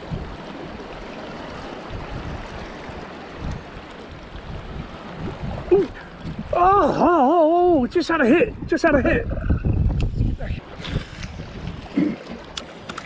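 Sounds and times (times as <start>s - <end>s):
sea lapping against rocks: 0.0s - 6.6s, 9.3s - 13.0s
wind buffeting microphone: 0.0s - 13.0s.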